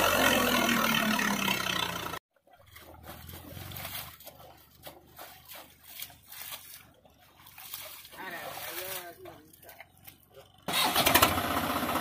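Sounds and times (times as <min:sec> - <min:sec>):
tractor diesel engine running: 0:00.0 - 0:12.0
wet mud squelching: 0:02.3 - 0:10.7.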